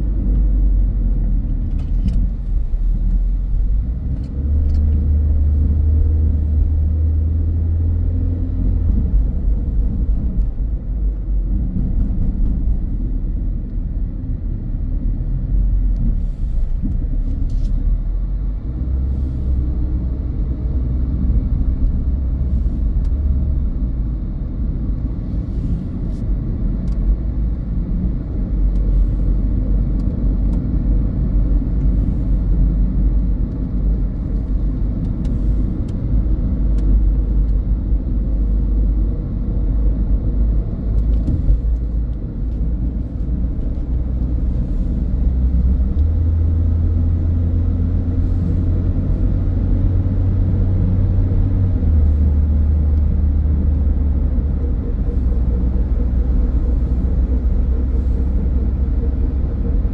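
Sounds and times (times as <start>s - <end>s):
car engine and tyre rumble: 0.0s - 59.9s
low hum: 0.0s - 59.9s.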